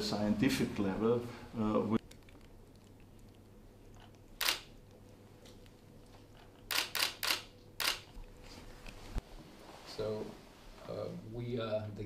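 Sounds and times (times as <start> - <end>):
camera shutter firing: 4.4 - 4.7, 6.7 - 8.1.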